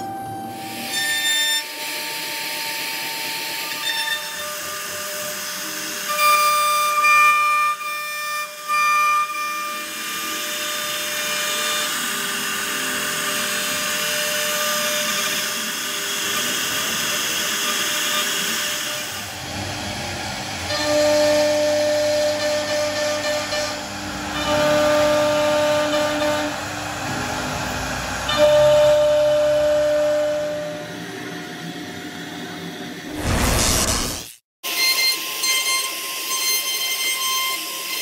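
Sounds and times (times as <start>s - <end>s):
router bit carving wood: 0.8s - 29.9s.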